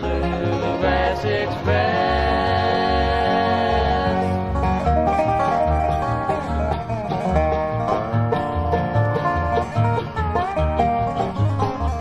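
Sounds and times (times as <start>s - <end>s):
acoustic guitar: 0.0s - 12.0s
banjo picking: 0.0s - 12.0s
upright bass notes: 0.0s - 12.0s.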